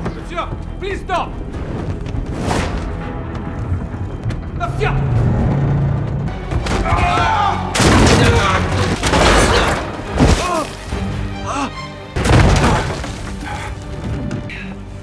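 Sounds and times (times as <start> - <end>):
dramatic film score: 0.0 - 15.0.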